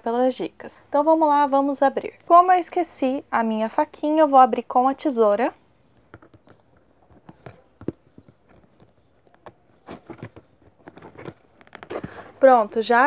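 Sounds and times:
cardboard rubbing: 0:05.9 - 0:12.6.

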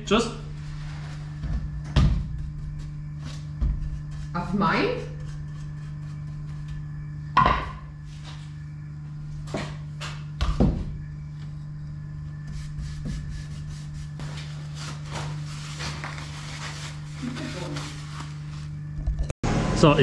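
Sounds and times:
low hum: 0:00.0 - 0:20.0
brush strokes on board: 0:12.5 - 0:15.0.

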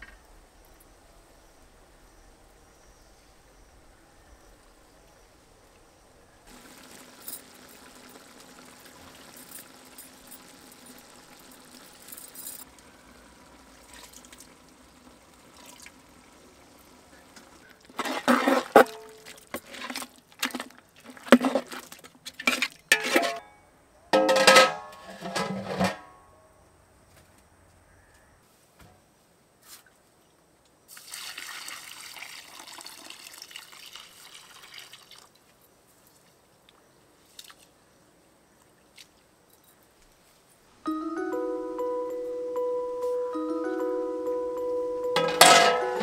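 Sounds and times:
liquid pouring into metal pot: 0:06.5 - 0:12.2, 0:13.4 - 0:16.5, 0:30.9 - 0:35.3
metal lid clanking: 0:22.5 - 0:23.5, 0:24.2 - 0:26.2, 0:45.2 - 0:46.0.

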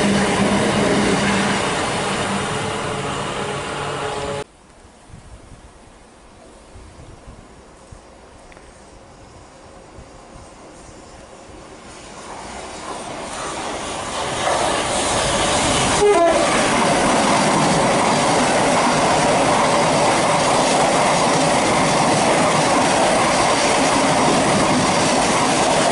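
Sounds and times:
train horn: 0:00.0 - 0:04.4, 0:15.9 - 0:16.8
train rushing through station: 0:00.0 - 0:04.5, 0:06.1 - 0:25.9.

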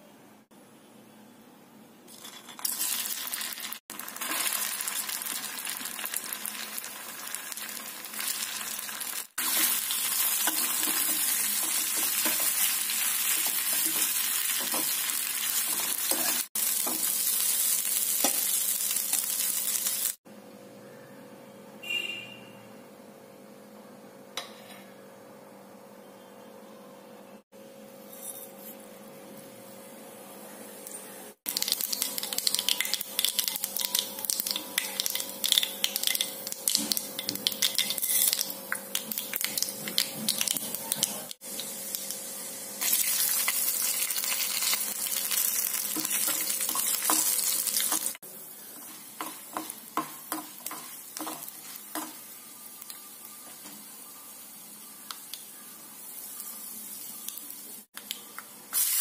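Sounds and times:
nuts sizzling in oil: 0:02.1 - 0:20.2, 0:31.4 - 0:59.0
mustard seeds popping in oil: 0:31.5 - 0:41.3.

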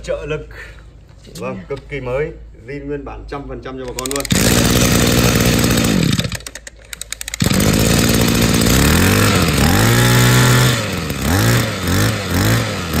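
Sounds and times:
brush cutter engine revving: 0:04.0 - 0:06.6, 0:07.2 - 0:13.0.

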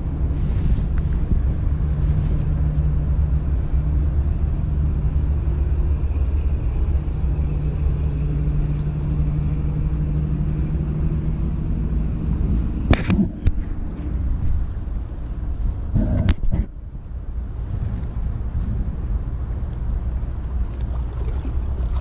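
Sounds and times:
constant hum: 0:00.0 - 0:22.0
low engine rumble: 0:00.0 - 0:22.0.

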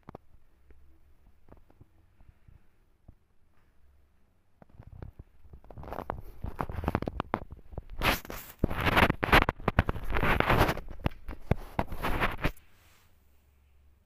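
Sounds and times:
rustling and scraping on fur: 0:05.6 - 0:13.2.

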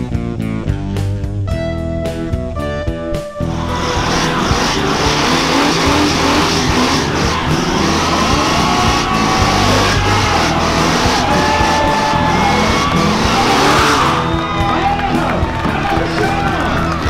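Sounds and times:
car engine revving: 0:03.4 - 0:17.0
tyres squealing: 0:03.5 - 0:17.0.

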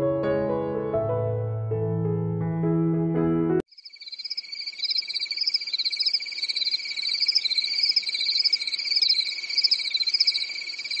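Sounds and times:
crickets and frogs calling: 0:03.7 - 0:11.0.

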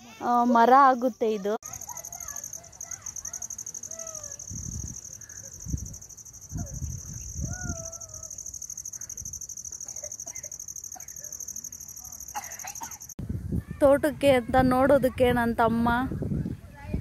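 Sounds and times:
insects chirring: 0:01.0 - 0:13.2
faint gliding calls: 0:01.6 - 0:12.3.

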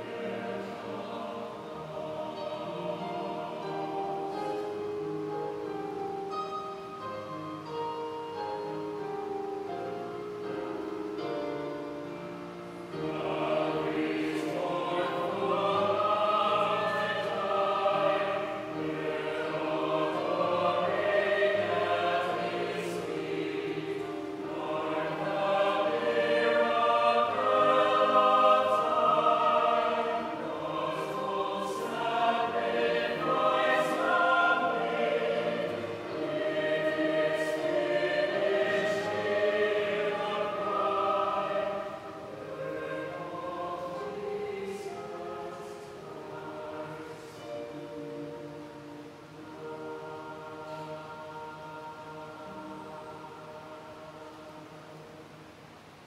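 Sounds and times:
choir singing a slow hymn: 0:00.0 - 0:56.0.

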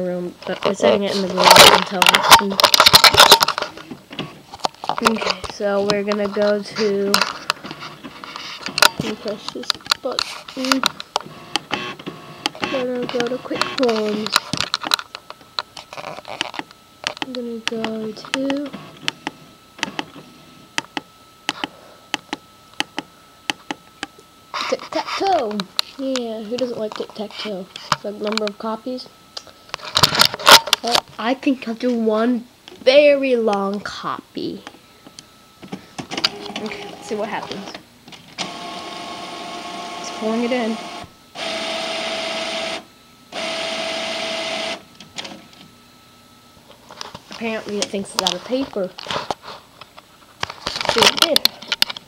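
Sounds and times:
printer paper-feed motor: 0:10.2 - 0:14.6, 0:18.2 - 0:20.6, 0:36.1 - 0:45.4.

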